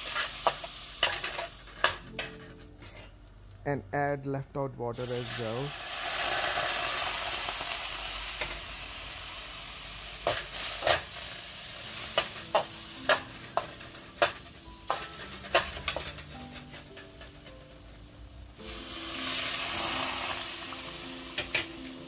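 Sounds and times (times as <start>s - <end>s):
water sizzling in a pan: 0.0s - 2.1s, 5.0s - 22.0s
metal turner scraping a pan: 0.0s - 3.2s, 10.2s - 17.8s, 21.3s - 21.7s.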